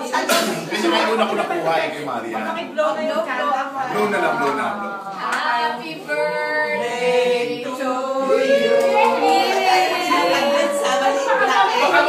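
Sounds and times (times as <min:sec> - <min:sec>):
group singing birthday song: 0:00.0 - 0:12.0.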